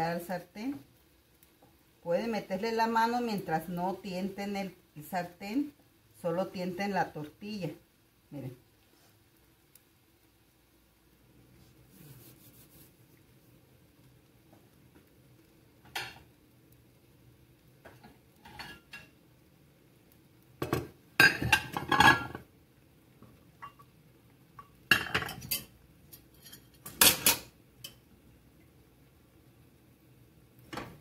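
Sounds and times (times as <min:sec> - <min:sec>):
ceramic plates and cups clattering: 0:20.6 - 0:22.4.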